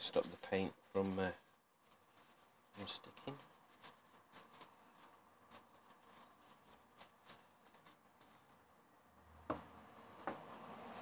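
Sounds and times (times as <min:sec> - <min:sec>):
paper rustling: 0:00.0 - 0:08.7.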